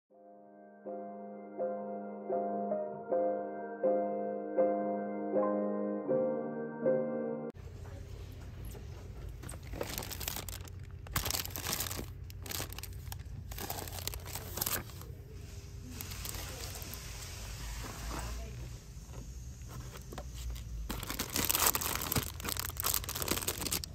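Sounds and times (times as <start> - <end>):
low background hum: 7.6 - 23.9
plastic packaging crinkling: 9.3 - 15.1, 15.9 - 17.0, 19.9 - 23.9.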